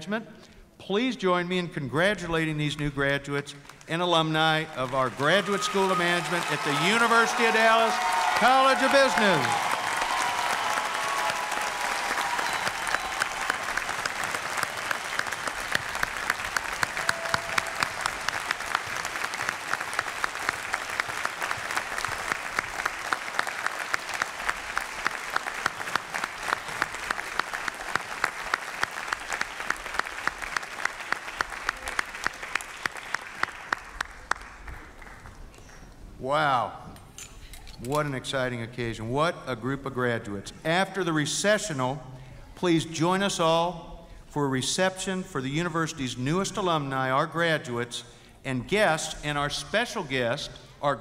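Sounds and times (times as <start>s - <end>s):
audience applauding: 3.6s - 35.9s.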